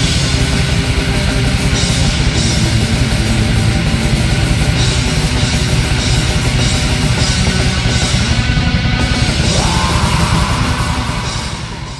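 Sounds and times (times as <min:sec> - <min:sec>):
distorted guitars: 0:00.0 - 0:11.9
dense drumming: 0:09.0 - 0:11.9.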